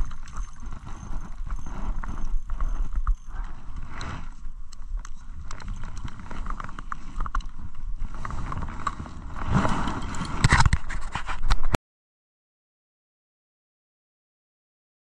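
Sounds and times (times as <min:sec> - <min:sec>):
jacket rubbing on microphone: 0:00.0 - 0:04.6, 0:08.0 - 0:11.8.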